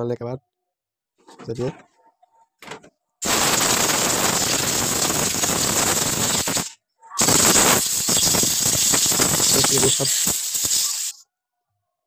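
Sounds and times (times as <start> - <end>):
air blow gun hissing: 3.2 - 11.2.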